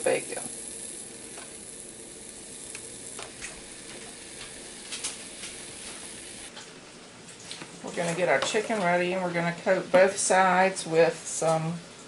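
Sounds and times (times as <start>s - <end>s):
bacon sizzling in a skillet: 0.0s - 6.5s.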